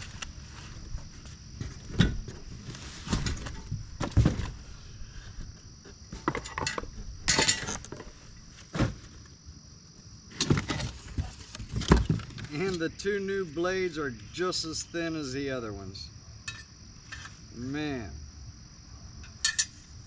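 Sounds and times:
parts knocking and clinking: 0:06.1 - 0:08.1, 0:16.4 - 0:17.3, 0:19.2 - 0:19.8
high insect buzz: 0:12.3 - 0:20.0.

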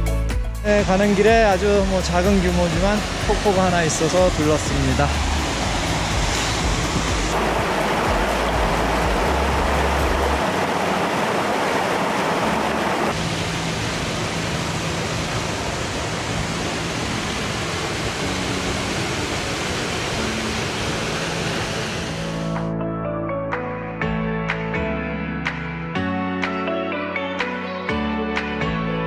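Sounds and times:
waterfall rushing: 0:00.8 - 0:22.6.

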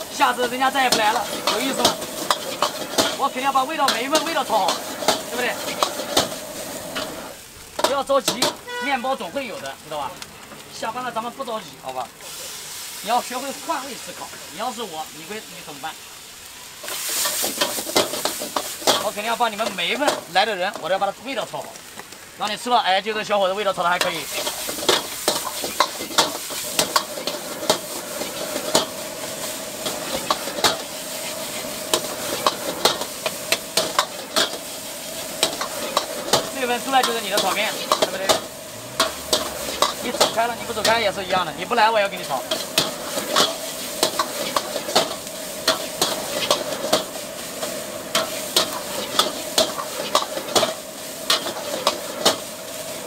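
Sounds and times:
fried rice sizzling: 0:00.0 - 0:53.0
metal ladle scraping wok: 0:00.8 - 0:08.8, 0:24.0 - 0:52.8.

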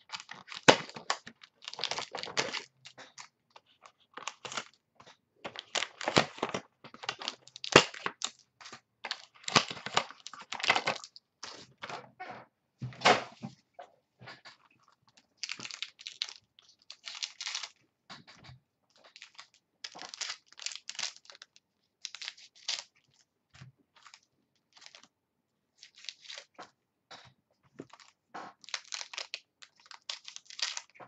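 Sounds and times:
scissors cutting wrapper: 0:00.0 - 0:04.7, 0:27.8 - 0:31.0
wrapper being torn and crinkled: 0:00.0 - 0:04.8, 0:05.5 - 0:11.6, 0:15.1 - 0:17.8, 0:18.9 - 0:23.2, 0:24.0 - 0:25.1, 0:25.8 - 0:26.6, 0:27.8 - 0:31.0.

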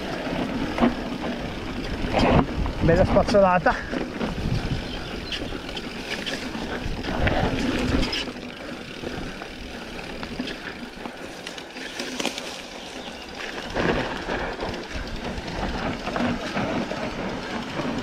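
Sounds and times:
bike rattling: 0:00.0 - 0:18.0
bike tyres crunching over gravel: 0:00.0 - 0:18.0
wind rumble on microphone: 0:00.7 - 0:08.2.

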